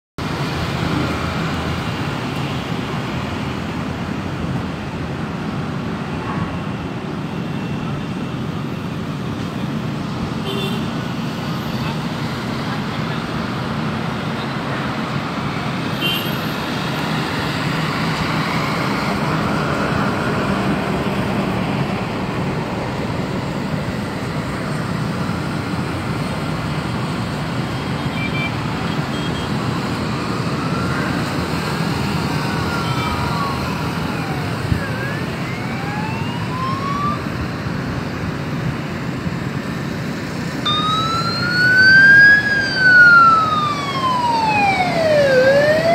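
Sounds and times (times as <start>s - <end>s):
city traffic noise: 0.2s - 45.9s
emergency vehicle siren wailing: 16.6s - 38.3s, 39.6s - 45.9s.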